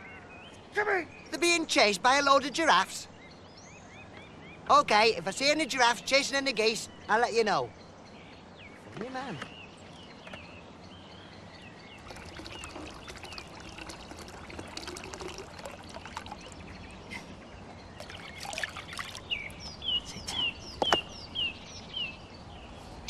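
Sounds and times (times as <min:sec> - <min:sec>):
bird chirping: 0:00.0 - 0:23.0
tap water running into barrel: 0:12.0 - 0:16.7, 0:18.0 - 0:19.3.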